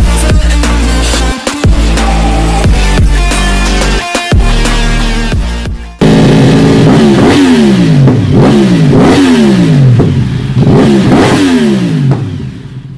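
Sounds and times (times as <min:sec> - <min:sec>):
music: 0:00.0 - 0:06.1
motorcycle engine revving: 0:06.0 - 0:12.9.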